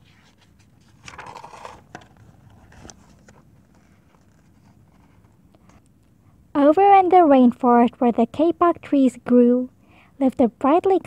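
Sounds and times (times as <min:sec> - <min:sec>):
light paper crackles: 0:00.0 - 0:06.0.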